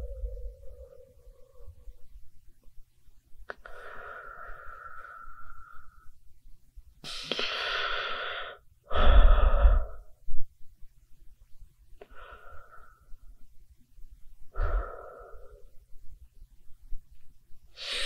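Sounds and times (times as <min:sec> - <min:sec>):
low rumble: 0:00.0 - 0:02.6
loud human breaths: 0:03.5 - 0:06.2, 0:07.0 - 0:10.3, 0:12.0 - 0:13.4, 0:14.5 - 0:15.9, 0:17.7 - 0:18.0.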